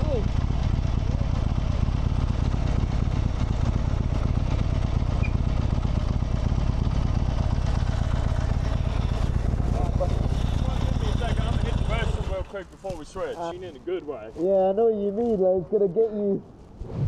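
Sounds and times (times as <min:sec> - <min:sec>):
motorcycle engine running steadily: 0:00.0 - 0:13.0.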